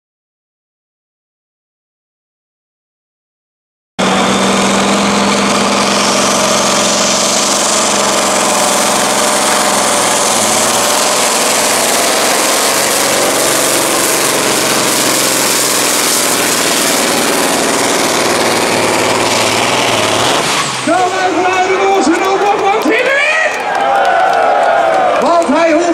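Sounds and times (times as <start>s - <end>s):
high turbo whine: 4.0s - 23.1s
diesel truck engine at full throttle: 4.0s - 23.8s.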